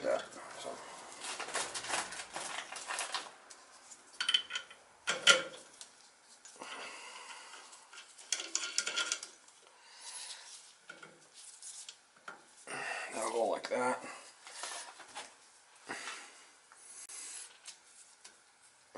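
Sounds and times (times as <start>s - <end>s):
metal parts clinking and rattling: 8.0s - 9.3s.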